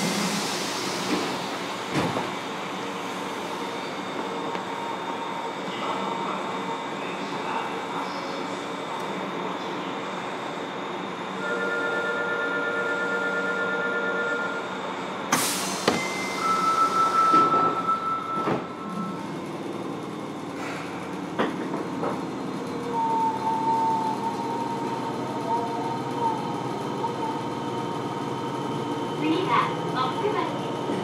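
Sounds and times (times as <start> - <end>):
train running rumble: 17.3 - 31.0.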